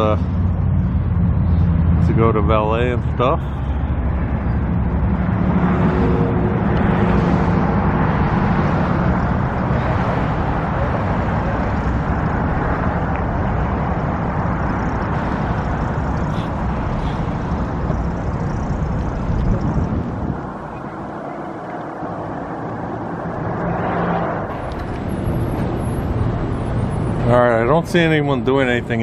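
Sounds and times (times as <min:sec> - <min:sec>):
road traffic passing: 0:00.0 - 0:29.0
vehicle engine droning: 0:00.0 - 0:29.0.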